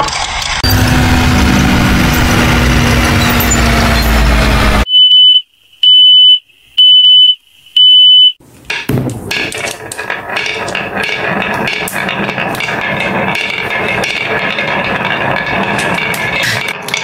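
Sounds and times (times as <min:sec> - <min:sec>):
glass marbles rolling on wood: 0:08.7 - 0:17.0.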